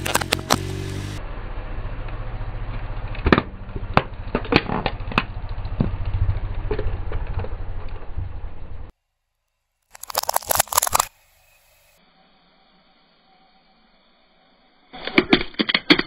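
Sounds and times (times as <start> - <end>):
car engine idling: 0.0 - 8.9
plastic toy cracking under tyre: 9.9 - 11.1, 15.0 - 16.0.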